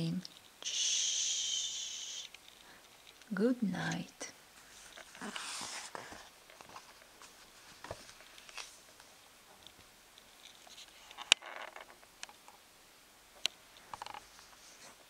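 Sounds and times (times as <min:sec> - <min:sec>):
book rustling and page noises: 0:04.6 - 0:09.2, 0:13.8 - 0:15.0.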